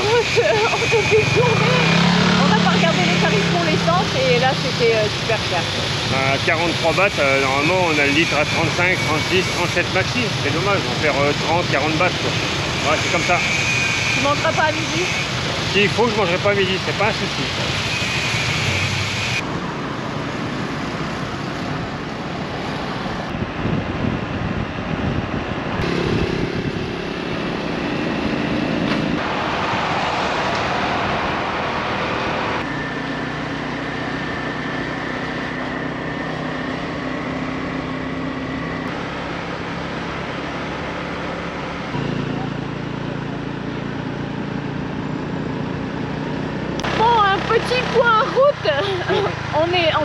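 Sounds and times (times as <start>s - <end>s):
wind on microphone: 21.0s - 29.4s
scooter engine running: 32.6s - 50.0s.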